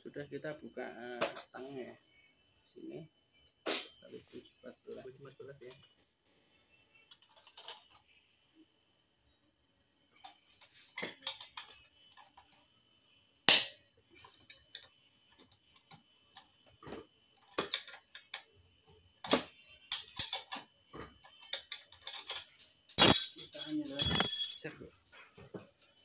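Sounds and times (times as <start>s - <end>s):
metal tools clicking and clinking: 7.1s - 8.0s, 10.2s - 12.5s, 14.2s - 14.9s, 17.4s - 18.5s, 19.3s - 24.7s.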